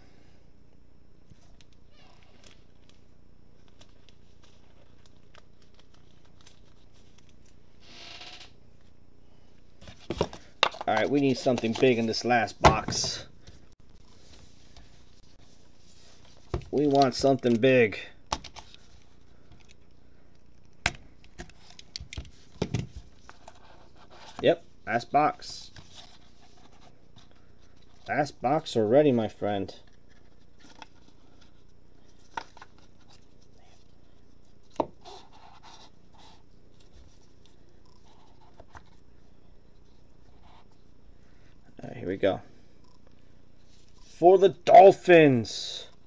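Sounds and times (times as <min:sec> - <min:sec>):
soft rustling and scraping: 0:13.4 - 0:16.8.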